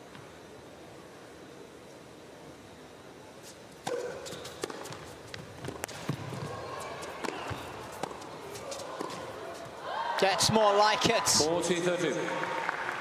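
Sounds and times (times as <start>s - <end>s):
murmur of arena noise: 0.0s - 13.0s
tennis racket strikes: 3.8s - 6.2s
tennis ball bounces: 3.8s - 9.7s.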